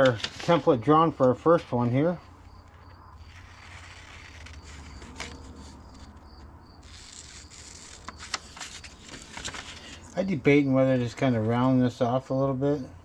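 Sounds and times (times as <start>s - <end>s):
scissors snipping paper: 3.3s - 6.1s.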